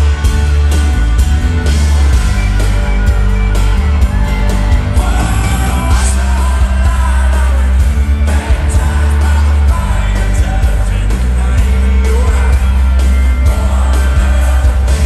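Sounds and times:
country band playing: 0:00.0 - 0:15.0
man singing into microphone: 0:05.0 - 0:15.0.

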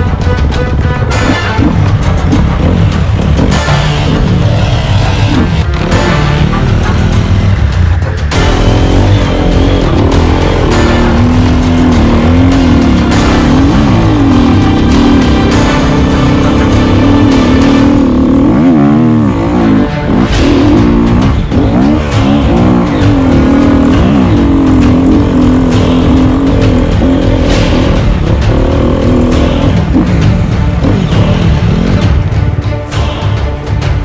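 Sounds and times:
dirt bike engine revving: 0:01.1 - 0:32.2.

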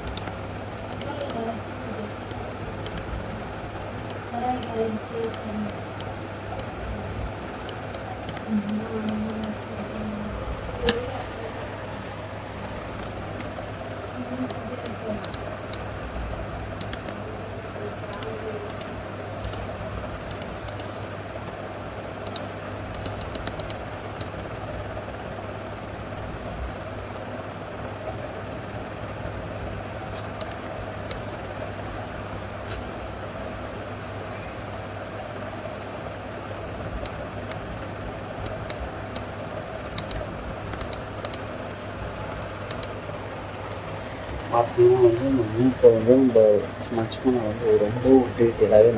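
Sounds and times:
computer mouse clicking: 0:00.0 - 0:01.4, 0:02.2 - 0:03.1, 0:04.0 - 0:06.8, 0:07.6 - 0:09.6, 0:14.5 - 0:15.9, 0:16.8 - 0:17.2, 0:18.1 - 0:19.7, 0:20.3 - 0:21.6, 0:22.2 - 0:24.5, 0:30.1 - 0:31.3, 0:37.0 - 0:37.7, 0:38.4 - 0:41.8, 0:42.4 - 0:43.0
steady low hum: 0:00.0 - 0:48.9.

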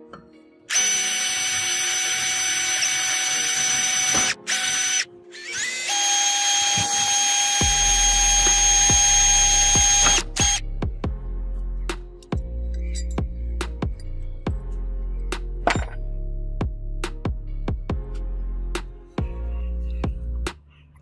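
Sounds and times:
electric drill whining: 0:00.7 - 0:10.6.

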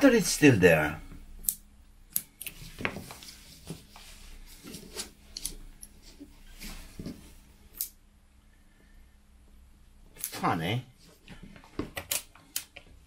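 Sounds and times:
cables handled on a bench: 0:02.2 - 0:07.9.

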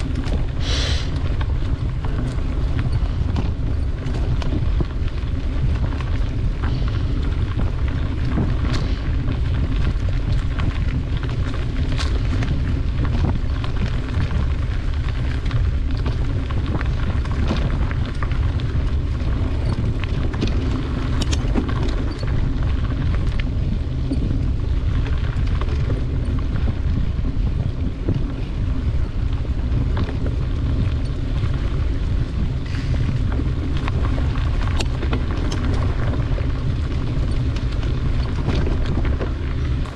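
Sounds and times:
bicycle tyres rolling on dirt: 0:00.0 - 0:39.9
bike clicks and rattles: 0:00.0 - 0:39.9
wind on microphone: 0:00.0 - 0:39.9.

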